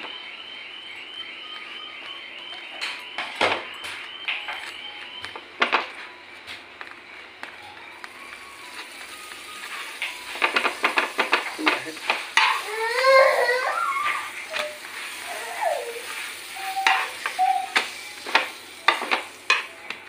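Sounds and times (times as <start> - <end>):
metal spoon scraping on a pan: 10.2 - 12.7, 14.0 - 19.7.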